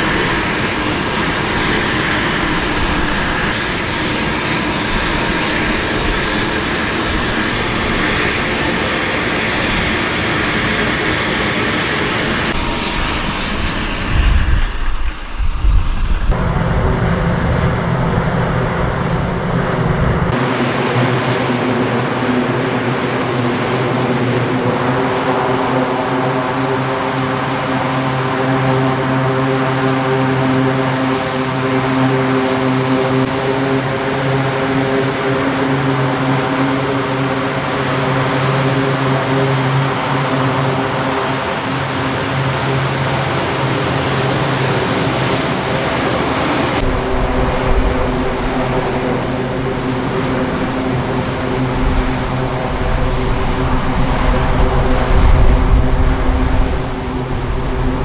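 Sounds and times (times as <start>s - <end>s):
turboprop engines droning: 0.0s - 58.0s
deep rumble: 12.6s - 20.4s.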